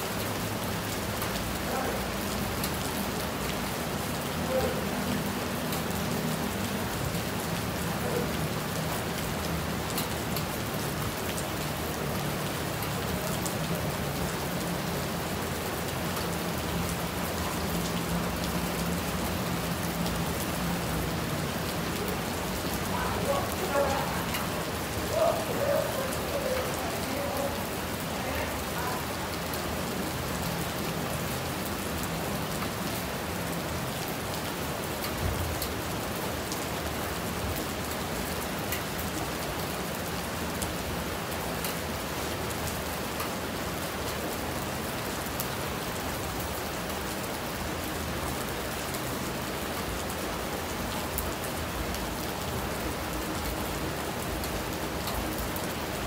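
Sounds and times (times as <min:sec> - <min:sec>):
rain falling: 0:00.0 - 0:56.0
stream running: 0:02.6 - 0:38.8.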